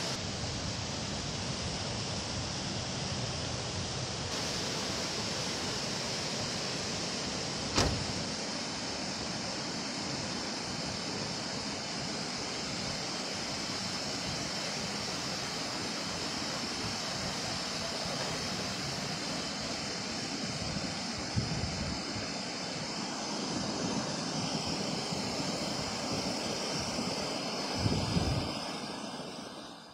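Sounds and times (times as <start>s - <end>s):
water rushing: 4.2s - 29.3s
sharp knock: 7.7s - 8.1s.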